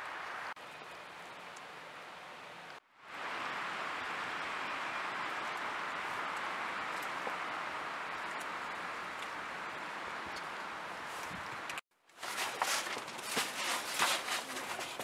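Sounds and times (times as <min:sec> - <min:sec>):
steady outdoor rushing noise: 0:01.3 - 0:11.8.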